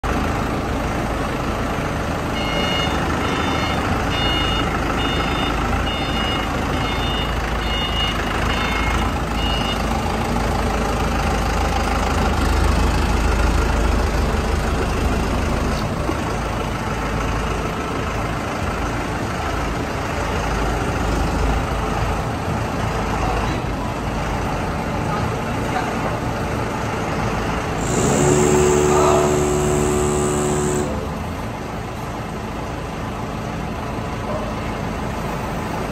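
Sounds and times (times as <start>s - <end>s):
forklift engine running: 0.0s - 35.9s
reversing alarm beeps: 2.4s - 9.9s, 27.8s - 31.0s.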